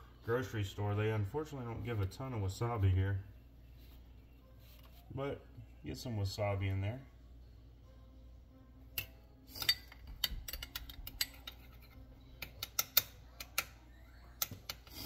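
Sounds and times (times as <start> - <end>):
metal spoon clinking glass bowl: 9.5 - 13.1.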